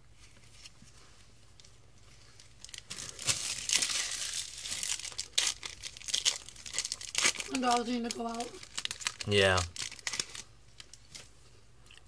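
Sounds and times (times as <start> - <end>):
foil wrapper tearing and crinkling: 2.4 - 11.2.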